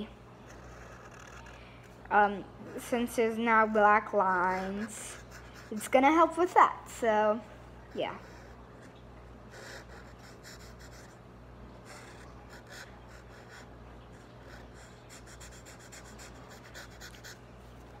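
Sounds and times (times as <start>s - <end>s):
felt-tip marker scribbling on paper: 14.4s - 17.4s.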